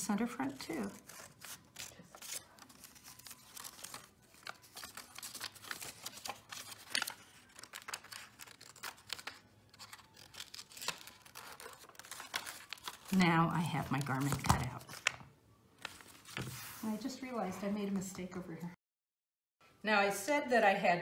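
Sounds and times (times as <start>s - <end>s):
scissors snipping paper: 0.4s - 13.2s
paper rustling: 0.5s - 13.2s, 13.9s - 15.2s, 15.8s - 18.0s.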